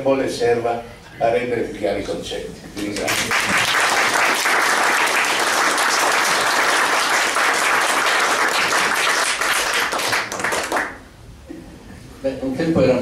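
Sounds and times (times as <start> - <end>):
audience applauding: 2.9 - 11.0.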